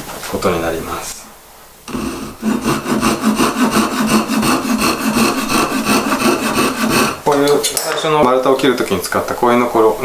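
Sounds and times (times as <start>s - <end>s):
hand saw cutting wood: 1.9s - 7.3s.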